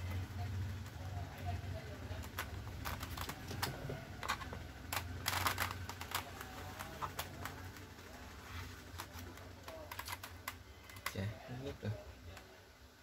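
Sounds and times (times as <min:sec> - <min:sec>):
scratchy plastic rustle: 0:02.2 - 0:11.2.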